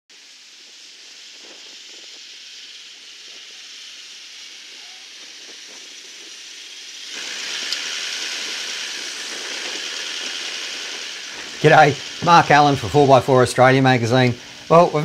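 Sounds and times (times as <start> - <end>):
surf breaking on beach: 7.0 - 15.0.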